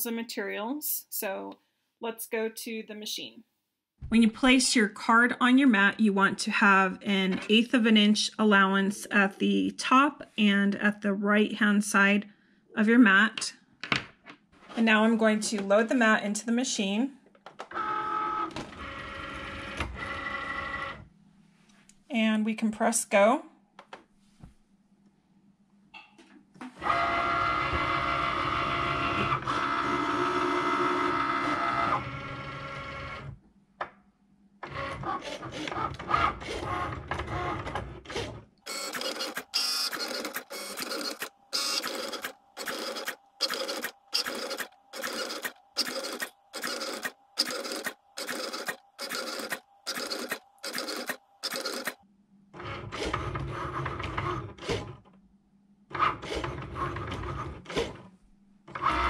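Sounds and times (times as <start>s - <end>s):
cutting machine motor whir: 26.8s - 33.3s, 34.6s - 52.0s.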